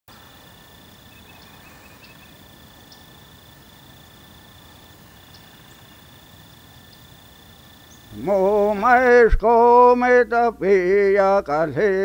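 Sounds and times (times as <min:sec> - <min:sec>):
faint bird chirps: 0:00.1 - 0:03.2, 0:04.6 - 0:06.2, 0:07.8 - 0:09.0
insect trilling: 0:00.1 - 0:12.0
soft background hiss: 0:00.1 - 0:12.0.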